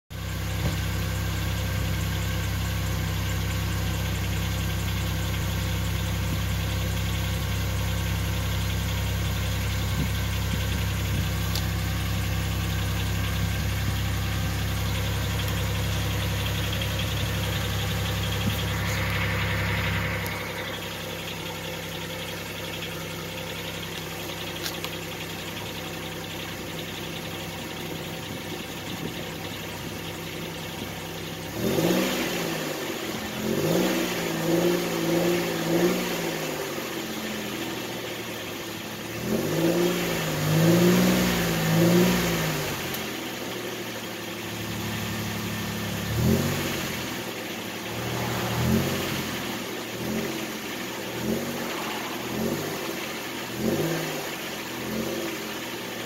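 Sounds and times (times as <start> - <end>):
car exhaust idling: 0.2 - 32.0, 43.1 - 56.0.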